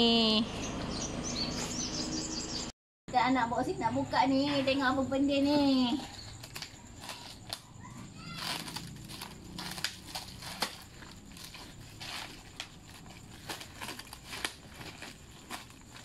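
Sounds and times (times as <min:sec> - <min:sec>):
scissors cutting plastic: 0:06.3 - 0:16.0
plastic film crinkling: 0:08.2 - 0:16.0.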